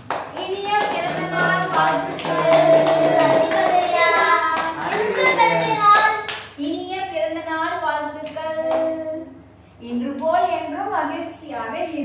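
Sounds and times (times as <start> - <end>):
hands clapping along: 0.0 - 6.6
people singing together: 0.8 - 5.9
child singing: 0.8 - 6.3.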